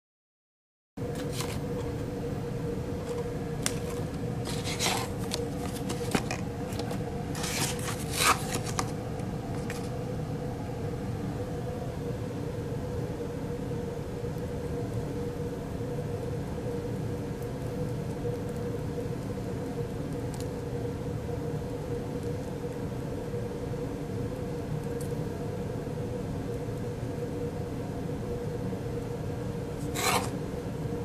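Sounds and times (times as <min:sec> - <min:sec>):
faint constant hum: 0:01.0 - 0:31.0
hands handling lab equipment: 0:01.1 - 0:02.0, 0:03.0 - 0:10.0.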